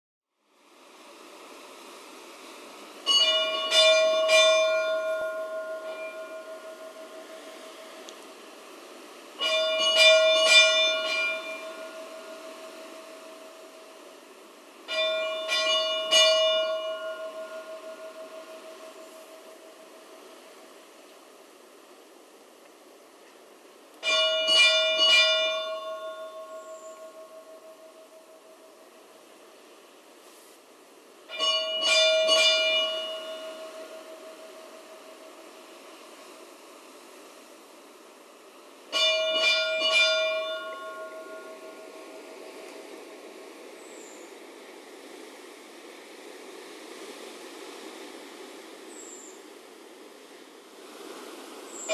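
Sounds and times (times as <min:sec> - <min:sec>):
church bell ringing: 0:03.1 - 0:07.4, 0:09.4 - 0:13.8, 0:14.9 - 0:19.7, 0:24.0 - 0:28.4, 0:31.3 - 0:35.2, 0:38.9 - 0:42.3.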